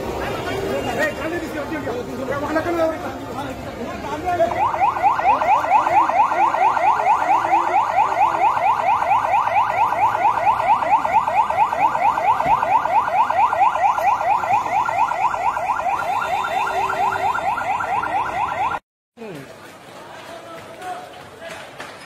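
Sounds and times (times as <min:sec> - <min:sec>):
police siren yelping: 0:04.2 - 0:18.8.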